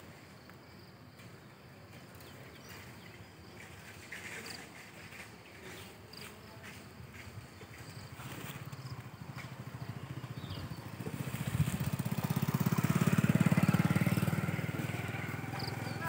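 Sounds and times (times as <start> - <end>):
small engine running: 7.7 - 16.0.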